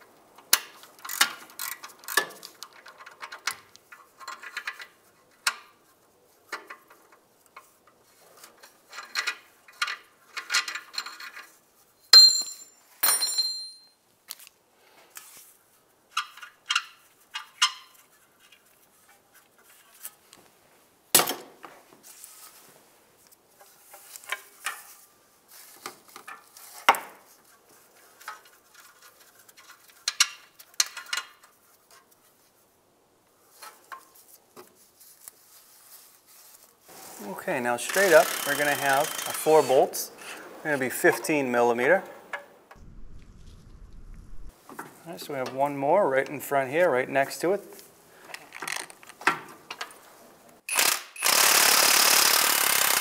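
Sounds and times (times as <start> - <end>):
metal clinking: 12.1 - 14.0
ratchet clicking: 38.0 - 39.4, 50.7 - 53.0.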